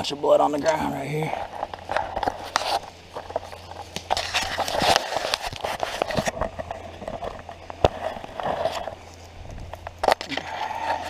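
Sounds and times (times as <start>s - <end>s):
twigs cracking: 1.4s - 11.0s.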